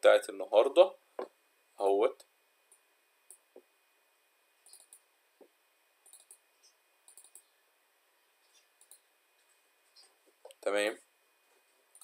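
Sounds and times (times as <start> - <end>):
faint computer mouse clicks: 4.6 - 5.0, 6.1 - 6.4, 7.1 - 7.5, 8.5 - 9.0.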